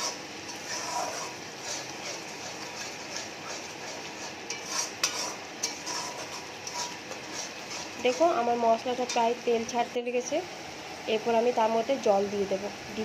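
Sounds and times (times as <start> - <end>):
spatula scraping paste in pan: 0.0 - 9.2.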